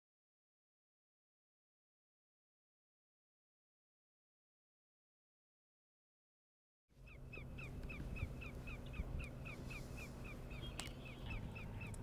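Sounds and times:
bird chirping rapidly: 7.0 - 12.0.

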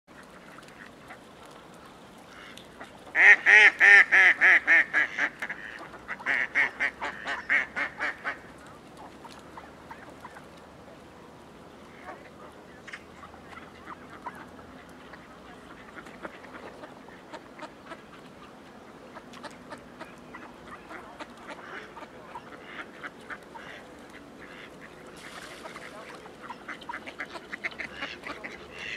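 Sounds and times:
faint clicks: 0.2 - 3.1
duck quacking loudly: 3.2 - 8.4, 26.5 - 28.9.

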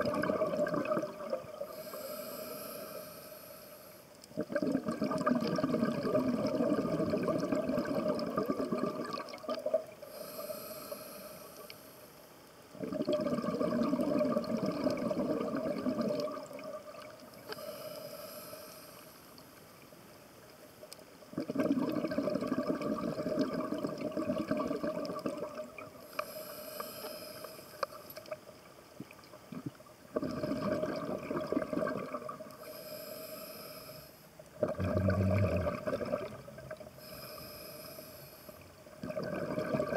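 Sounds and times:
bubbling regulator exhalation: 0.0 - 2.5, 4.4 - 11.0, 12.8 - 16.9, 21.4 - 26.2, 29.5 - 32.9, 34.6 - 38.2, 38.9 - 39.9
hissing regulator inhalation: 1.7 - 4.0, 10.1 - 11.9, 26.1 - 28.0, 32.6 - 34.2, 37.0 - 38.6.

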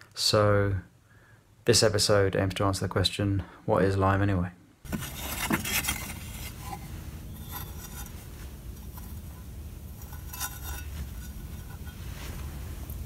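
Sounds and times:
trowel scraping powder: 4.9 - 8.3, 10.0 - 12.5
steady low rumble: 6.3 - 13.0.

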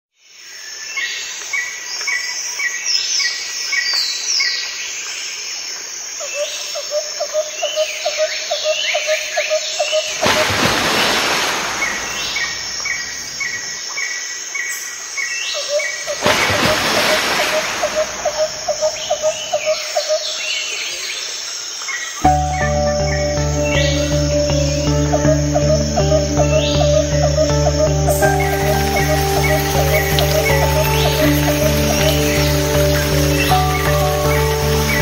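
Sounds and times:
birds chirping: 8.5 - 35.0.

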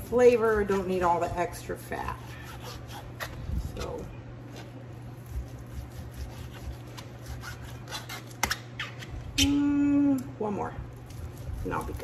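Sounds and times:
knife slicing bacon on board: 5.2 - 8.6.

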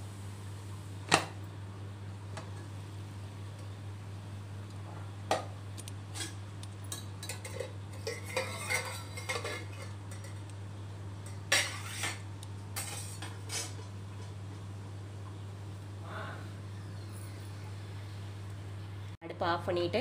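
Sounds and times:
metal lid clinking and scraping: 6.1 - 10.4, 11.2 - 12.2.

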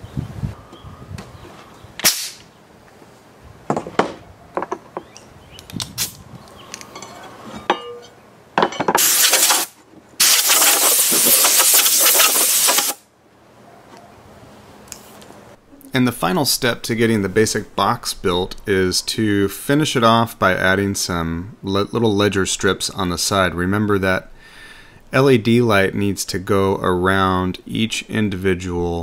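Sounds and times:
compressed air hissing from hose: 9.0 - 13.0.

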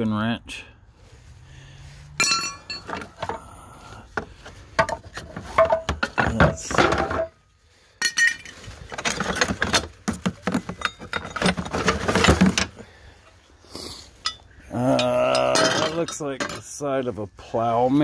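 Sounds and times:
metal tools clanking together: 2.2 - 3.4, 4.8 - 7.3, 8.0 - 12.7, 14.2 - 16.8.

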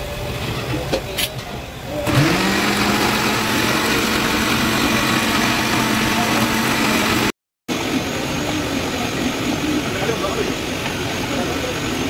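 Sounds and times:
mixer grinder motor humming: 2.0 - 7.4
steady background noise: 7.7 - 12.0.

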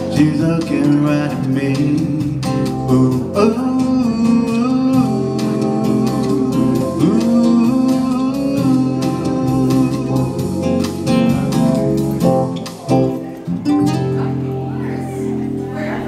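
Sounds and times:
acoustic guitar picking: 0.0 - 16.0
electric keyboard chords: 0.0 - 16.0.

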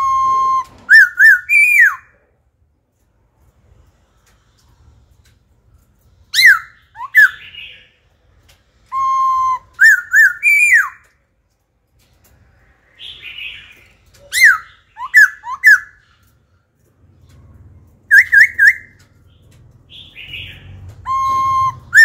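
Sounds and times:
bird whistled song: 0.0 - 2.2, 6.2 - 8.0, 8.8 - 11.2, 12.9 - 16.3, 18.0 - 22.0.

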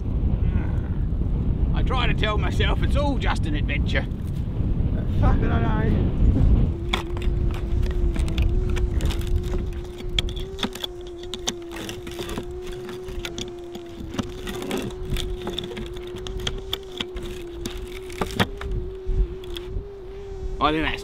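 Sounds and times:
steady hum: 0.0 - 21.0
wind rumble on microphone: 0.0 - 21.0.

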